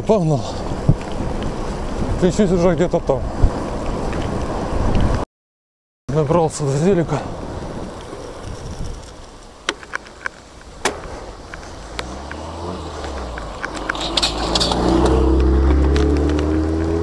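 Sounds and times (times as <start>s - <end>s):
vehicle engine passing: 11.1s - 17.0s.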